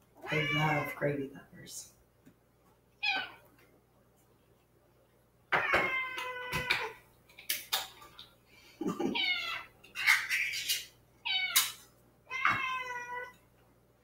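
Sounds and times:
cat meowing: 0:00.2 - 0:01.0, 0:03.0 - 0:03.5, 0:05.5 - 0:07.0, 0:11.2 - 0:13.4.

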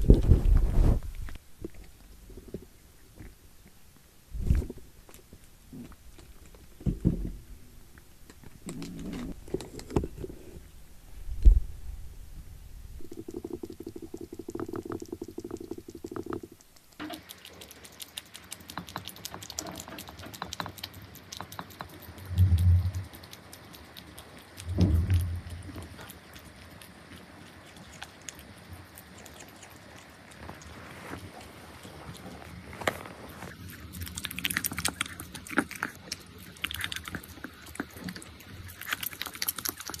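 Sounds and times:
cat lapping and chewing food: 0:00.0 - 0:11.3, 0:12.8 - 0:40.0
low thud: 0:11.2 - 0:12.5, 0:24.7 - 0:25.7.

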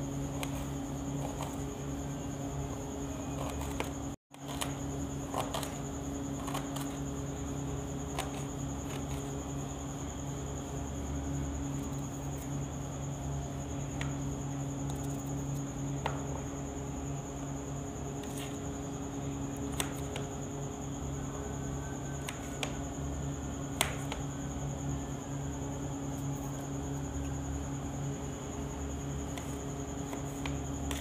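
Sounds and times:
knife slicing garlic clicks: 0:19.7 - 0:20.3.

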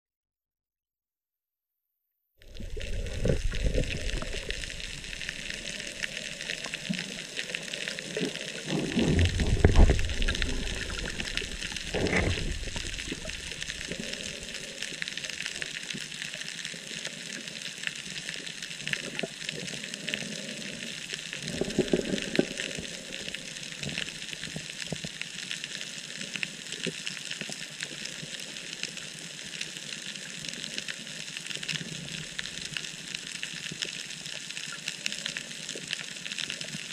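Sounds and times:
low rushes of water: 0:02.5 - 0:16.4, 0:18.8 - 0:25.0
underwater hiss with crackling: 0:02.5 - 0:36.9.

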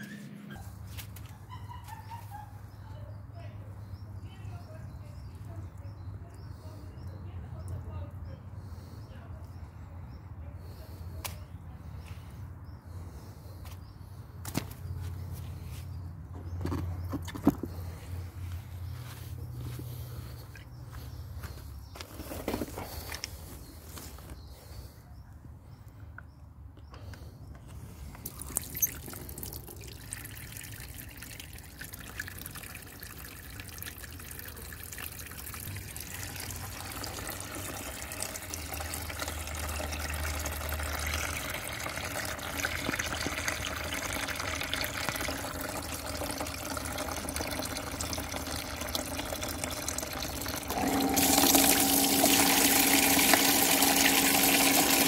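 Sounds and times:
pump humming: 0:28.2 - 0:55.0
water gushing into plastic basin: 0:28.2 - 0:55.0
water trickling: 0:28.2 - 0:55.0.

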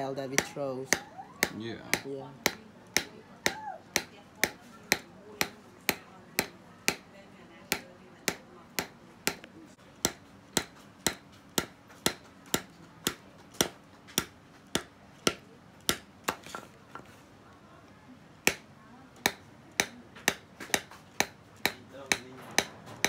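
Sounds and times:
metal punch tapping leather: 0:00.4 - 0:07.1, 0:18.4 - 0:18.6.

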